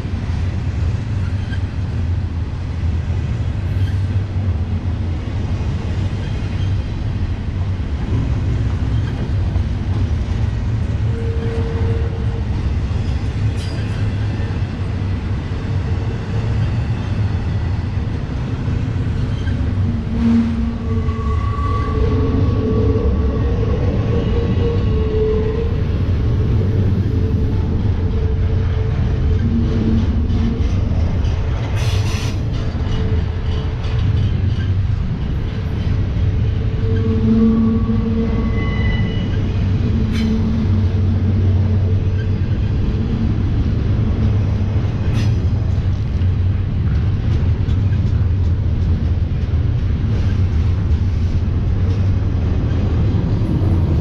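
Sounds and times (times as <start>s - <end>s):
train wheels rumbling on rail: 0.0s - 54.0s
train wheels squealing: 1.1s - 1.7s, 3.7s - 4.1s, 8.8s - 9.4s, 11.0s - 14.6s, 19.1s - 27.6s, 31.7s - 34.8s, 36.6s - 41.1s, 41.8s - 43.2s, 45.0s - 45.5s.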